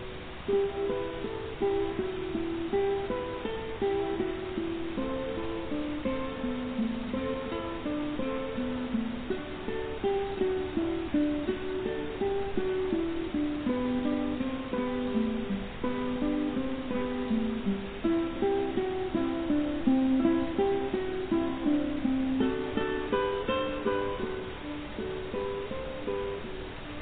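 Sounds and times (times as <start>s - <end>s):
plucked string instrument melody: 0.0s - 27.0s.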